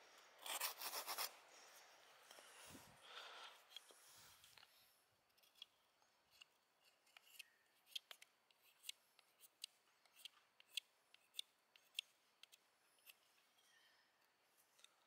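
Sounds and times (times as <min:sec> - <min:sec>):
knife shaving wooden stick: 0:00.3 - 0:01.4, 0:05.3 - 0:13.2.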